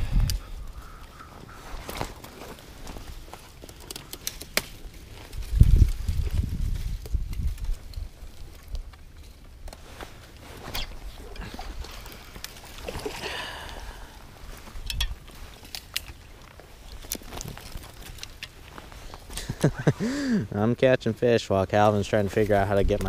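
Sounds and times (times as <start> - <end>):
wind on microphone: 0.0 - 0.8, 5.4 - 8.2.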